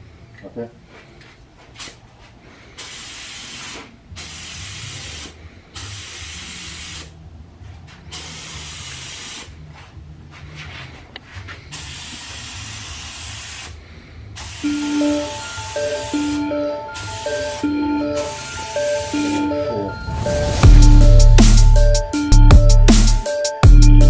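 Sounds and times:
paint spray gun hissing: 2.8s - 7.1s, 8.1s - 9.5s, 11.8s - 13.7s, 14.4s - 14.7s
low hum: 14.8s - 23.2s.

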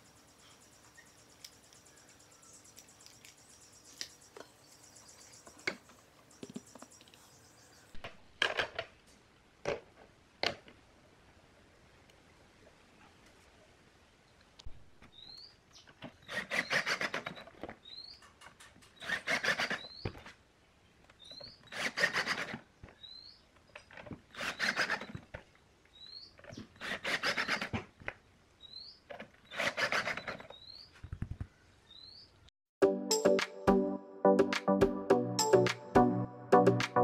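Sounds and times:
cordless drill driving screws: 19.0s - 20.0s, 24.3s - 25.2s, 26.8s - 27.7s, 29.5s - 30.4s.

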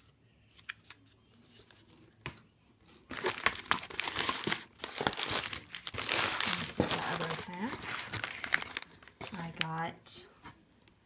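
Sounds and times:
plastic air-cushion packing crinkling: 3.1s - 9.9s.

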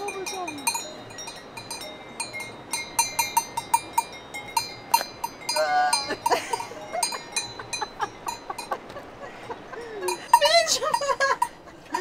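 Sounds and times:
cowbell clanking: 0.0s - 8.9s, 10.0s - 11.7s.

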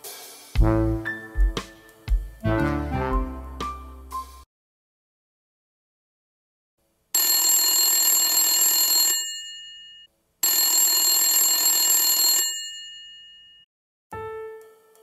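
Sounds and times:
telephone bell ringing: 7.2s - 13.7s.

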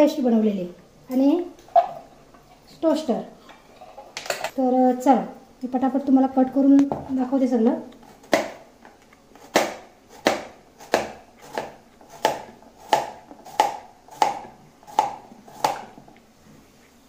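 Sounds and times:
knife chopping on cutting board: 8.2s - 8.6s, 9.4s - 16.0s.

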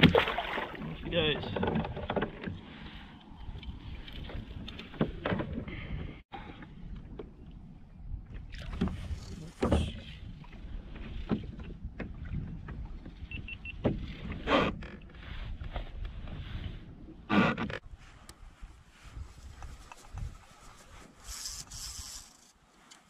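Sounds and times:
water splash: 0.0s - 0.9s
water lapping against a hull: 0.0s - 17.8s
wind rumble on microphone: 1.8s - 22.0s.

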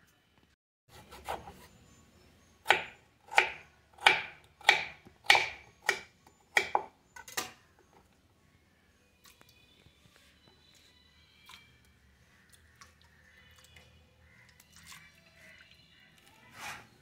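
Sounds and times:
knife chopping potato on board: 2.7s - 6.9s.

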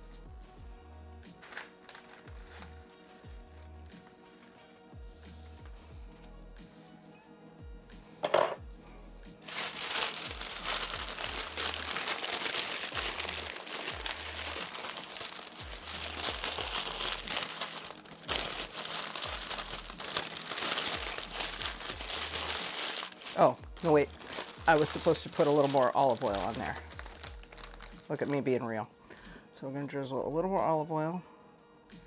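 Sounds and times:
background music with bass beat: 0.0s - 1.4s, 2.3s - 9.5s
parchment paper crinkling: 1.4s - 4.6s, 9.5s - 28.5s.

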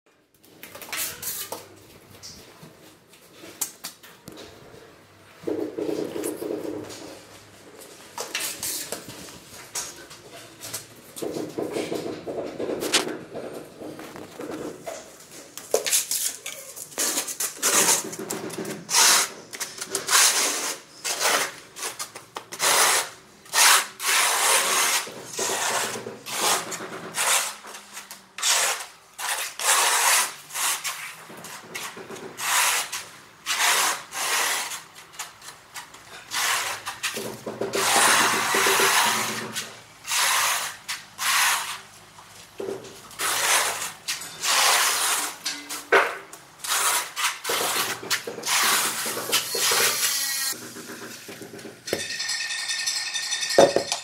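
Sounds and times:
trowel scraping mortar: 15.7s - 42.0s, 43.1s - 45.9s, 46.6s - 52.4s.

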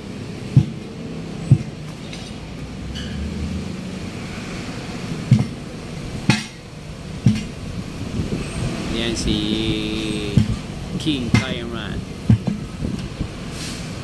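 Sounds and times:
sledgehammer thuds on tyre: 0.5s - 0.9s, 1.5s - 1.8s, 5.3s - 5.6s.

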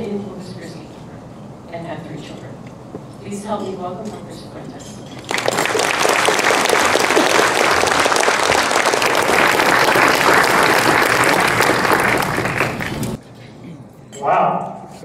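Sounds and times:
audience applauding: 5.2s - 13.2s.

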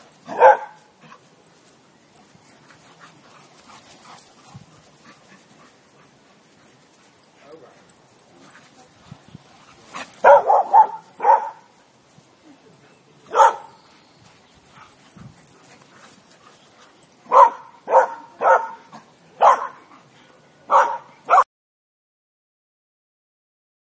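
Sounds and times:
dogs barking: 0.3s - 0.9s, 10.0s - 11.7s, 13.3s - 13.8s, 17.3s - 19.8s, 20.7s - 21.4s.

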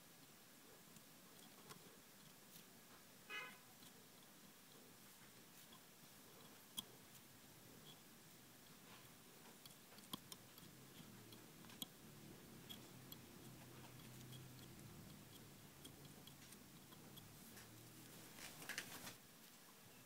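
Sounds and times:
faint low hum: 0.0s - 20.0s
faint small clicks: 8.7s - 19.2s.

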